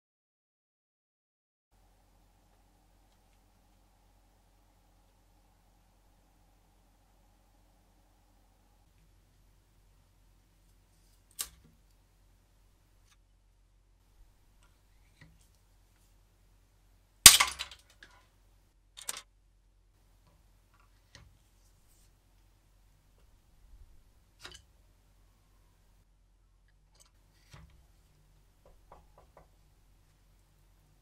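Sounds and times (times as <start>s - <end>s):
plastic bar snapping: 11.3s - 11.7s
broken pieces rattling: 17.3s - 18.2s, 19.0s - 19.2s.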